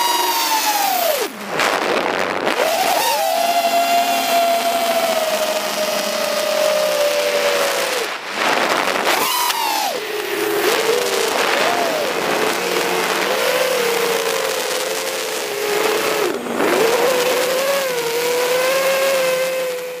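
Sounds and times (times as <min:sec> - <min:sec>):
drone motors whining: 0:00.0 - 0:20.0.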